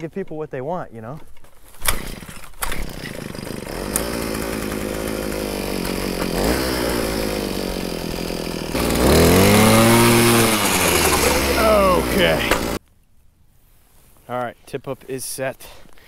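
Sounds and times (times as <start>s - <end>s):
ice auger engine running: 1.9s - 12.8s.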